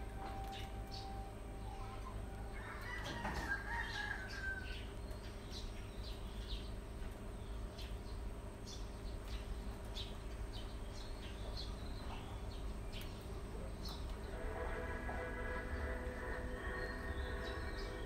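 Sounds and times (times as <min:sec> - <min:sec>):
rabbits chewing greens: 0:00.0 - 0:18.0
rooster crowing: 0:02.4 - 0:04.8.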